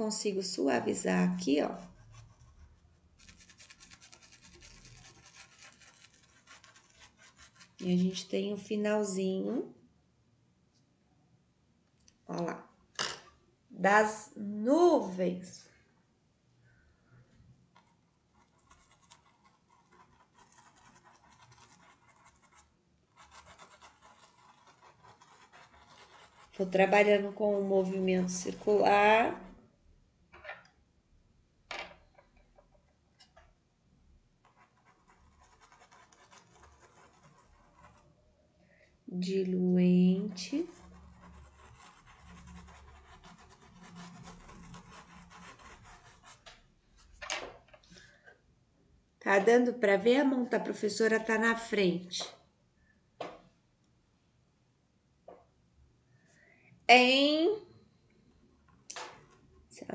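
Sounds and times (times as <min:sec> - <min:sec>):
paintbrush scratching on cloth: 0:01.6 - 0:07.9, 0:17.7 - 0:28.8, 0:34.4 - 0:38.2, 0:40.2 - 0:46.6.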